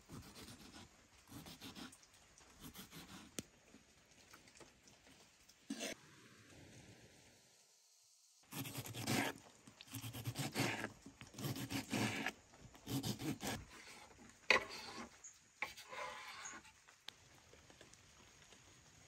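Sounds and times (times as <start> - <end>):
knife scraping board: 5.7 - 6.0, 8.5 - 16.7
knife cutting tomatoes on wooden board: 8.5 - 16.6.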